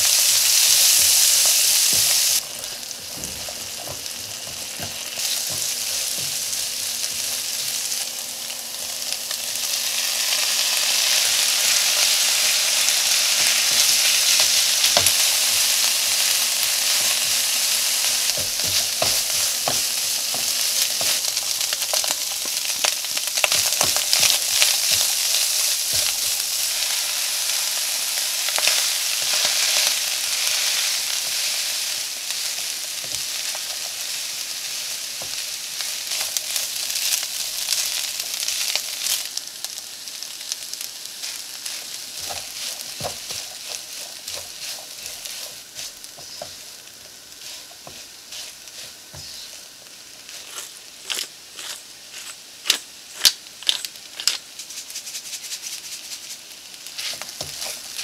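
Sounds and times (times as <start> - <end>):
food sizzling in oil: 0.0 - 58.0
spatula scraping a pan: 13.4 - 22.1, 41.2 - 49.6, 56.9 - 58.0.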